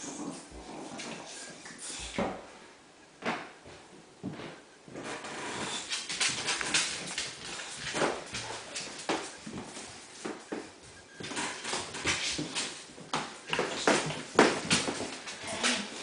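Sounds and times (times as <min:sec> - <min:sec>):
dogs scuffling: 0:04.3 - 0:16.0.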